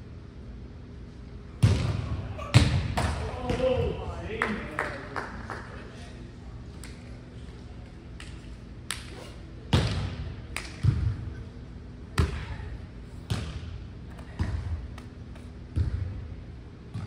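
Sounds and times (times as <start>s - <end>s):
low steady hum: 0.0s - 17.0s
volleyball thudding: 1.6s - 3.9s, 9.7s - 11.2s, 13.2s - 15.1s, 15.7s - 16.2s.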